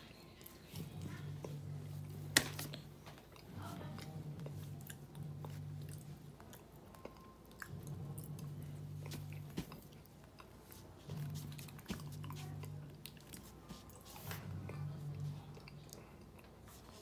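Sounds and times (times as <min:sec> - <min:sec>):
toddler chewing: 0:00.0 - 0:17.0
low hum: 0:00.7 - 0:10.4.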